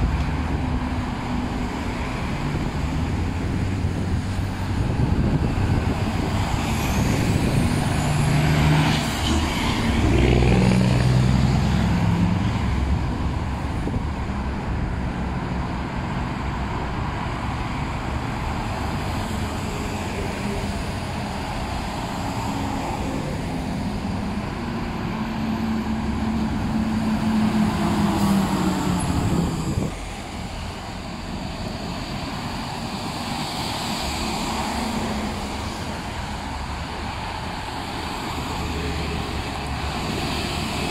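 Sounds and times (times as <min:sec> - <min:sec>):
heavy truck diesel engine: 0:00.0 - 0:40.9
road traffic passing: 0:00.0 - 0:40.9.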